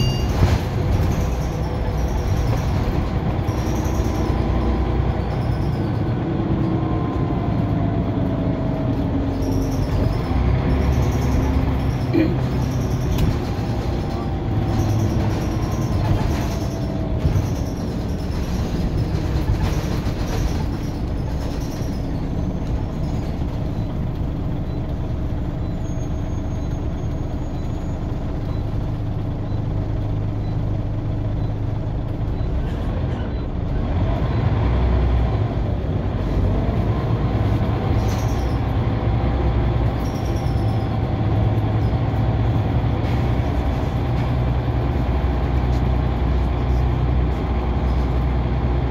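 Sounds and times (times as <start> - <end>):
bus diesel engine drone: 0.0 - 48.9.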